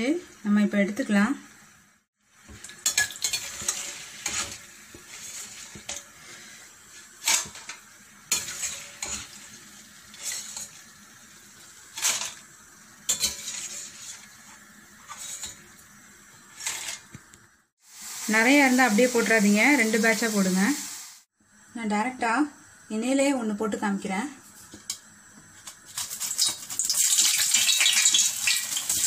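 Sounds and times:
oil sizzling: 0:00.0 - 0:21.3, 0:24.4 - 0:29.0
metal spatula scraping a pan: 0:02.8 - 0:10.9, 0:11.9 - 0:12.4, 0:13.1 - 0:15.8, 0:16.4 - 0:17.2.

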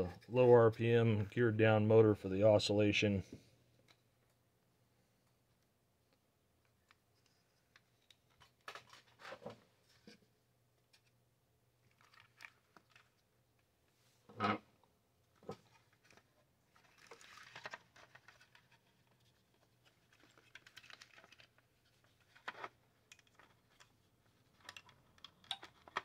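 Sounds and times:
plastic parts clicking: 0:22.2 - 0:26.0.

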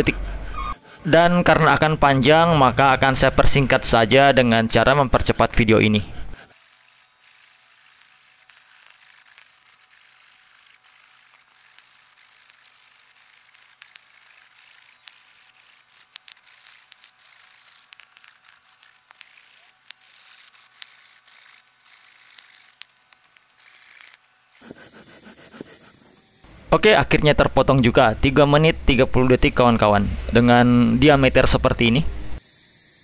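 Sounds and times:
hand saw rasping through log: 0:06.0 - 0:22.9, 0:23.6 - 0:26.2.

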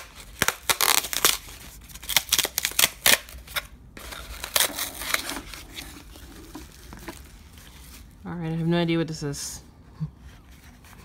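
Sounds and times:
cardboard tearing and crackling: 0:00.0 - 0:08.0.

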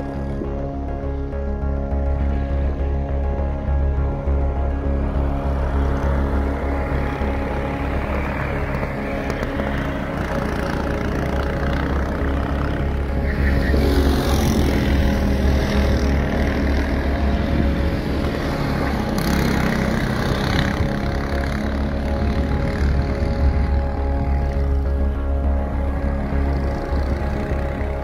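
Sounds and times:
background music: 0:00.0 - 0:28.0
go-kart engine running: 0:00.0 - 0:28.0.

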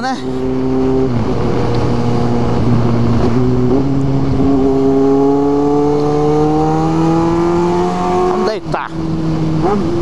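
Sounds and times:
motorcycle engine accelerating: 0:00.0 - 0:10.0
wind rushing on helmet: 0:00.3 - 0:07.7.

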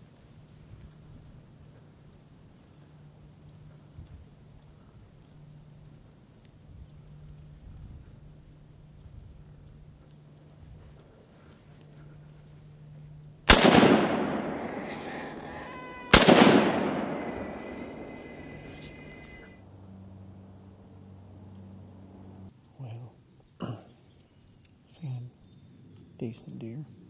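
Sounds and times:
rifle shot with echo: 0:13.5 - 0:19.5.

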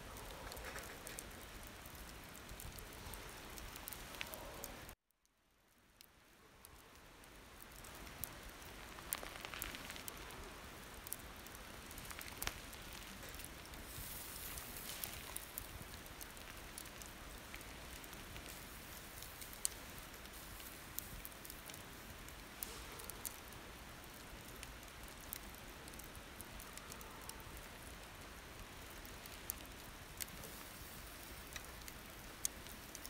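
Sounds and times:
charcoal fire crackling: 0:00.0 - 0:33.0
pork sizzling on a grill: 0:07.1 - 0:33.0.

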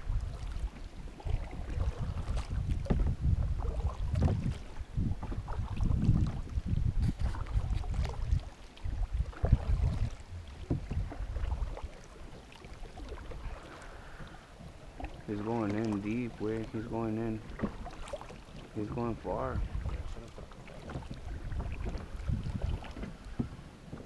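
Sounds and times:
wind buffeting microphone: 0:00.0 - 0:12.0, 0:13.0 - 0:24.0.

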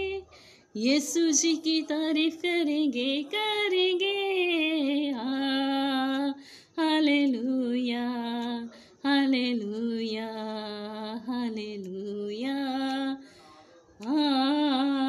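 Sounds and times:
woman singing unaccompanied: 0:00.0 - 0:13.4, 0:14.0 - 0:15.0.

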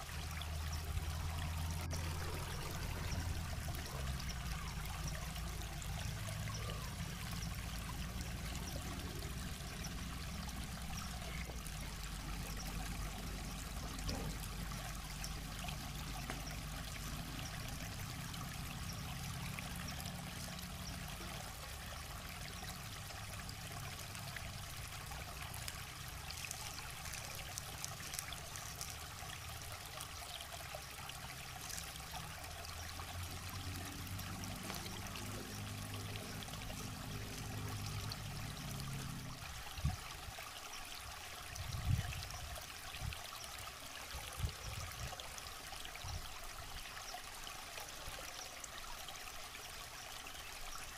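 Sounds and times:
river water flowing: 0:00.0 - 0:50.9
wood fire crackling: 0:25.5 - 0:29.1.

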